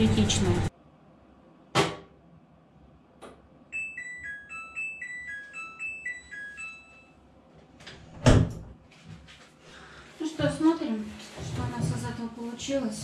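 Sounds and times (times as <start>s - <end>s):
electronic beep melody: 3.8s - 7.2s.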